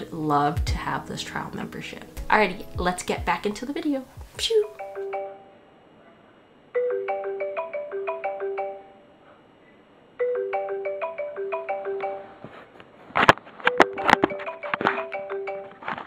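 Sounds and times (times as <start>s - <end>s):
marimba ringtone melody: 4.6s - 5.6s, 6.8s - 9.0s, 10.2s - 12.4s, 14.0s - 15.8s.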